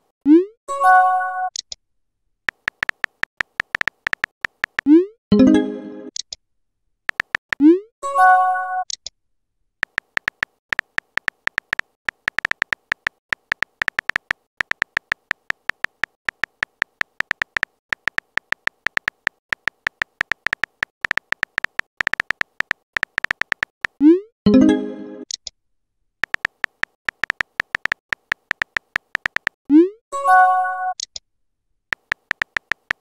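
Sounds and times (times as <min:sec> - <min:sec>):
phone keyboard key clicks: 0:02.5 - 0:04.9, 0:07.1 - 0:07.6, 0:09.8 - 0:24.0, 0:26.2 - 0:29.6, 0:31.9 - 0:33.0.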